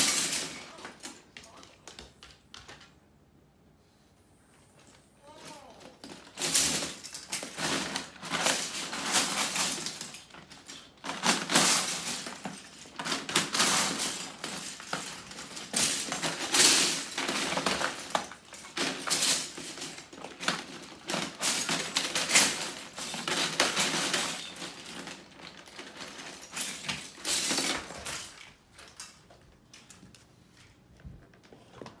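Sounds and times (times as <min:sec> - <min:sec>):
plastic bricks rattling in a bin: 0:00.0 - 0:01.2, 0:05.4 - 0:29.2.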